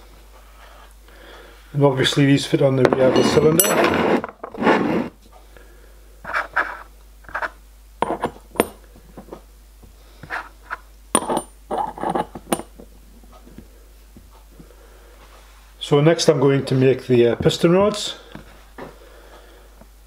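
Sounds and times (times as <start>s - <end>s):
metal clinks and knocks: 11.2s - 12.8s.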